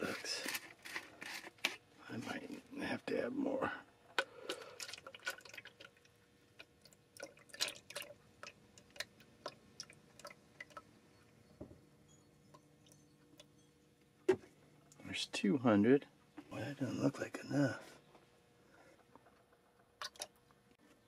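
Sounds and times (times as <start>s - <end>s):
small drips: 4.3s - 10.9s, 20.0s - 20.6s
liquid trickling into cup: 4.4s - 10.9s, 20.0s - 20.4s.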